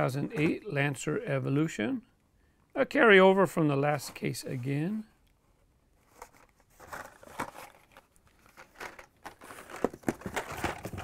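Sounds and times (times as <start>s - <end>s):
plastic packaging crinkling and clicking: 6.2s - 11.0s.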